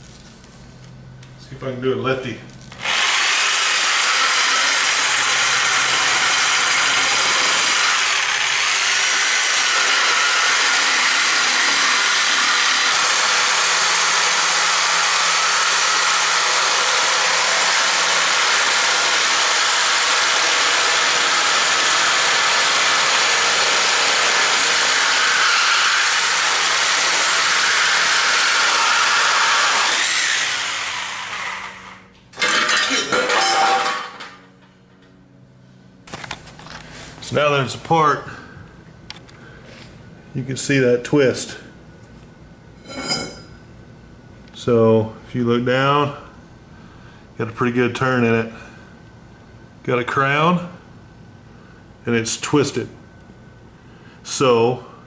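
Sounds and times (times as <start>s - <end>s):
reciprocating saw cutting steel: 2.8s - 34.2s.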